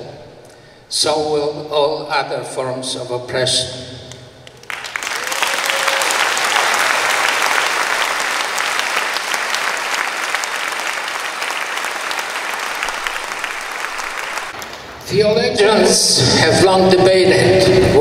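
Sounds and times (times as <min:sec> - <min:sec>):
large audience applauding: 0:04.4 - 0:15.0.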